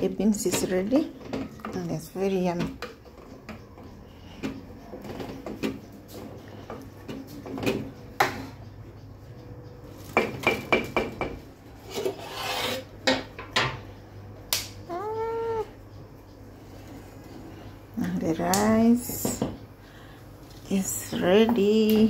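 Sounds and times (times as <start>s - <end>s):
wooden spoon scraping metal pot: 11.8s - 13.0s
cat meowing: 14.9s - 15.8s.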